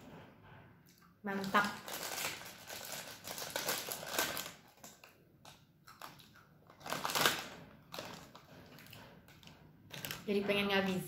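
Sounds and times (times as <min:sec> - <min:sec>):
plastic packet crinkling: 0:01.3 - 0:11.0
peanuts being crunched: 0:01.4 - 0:08.4.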